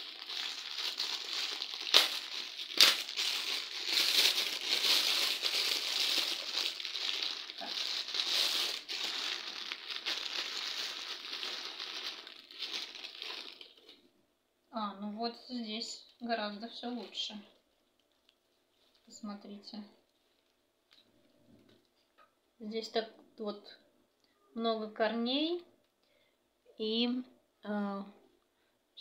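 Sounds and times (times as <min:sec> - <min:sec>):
plastic bag crinkling: 0:00.0 - 0:14.0, 0:16.9 - 0:19.2
plastic bag snaps: 0:01.6 - 0:05.5.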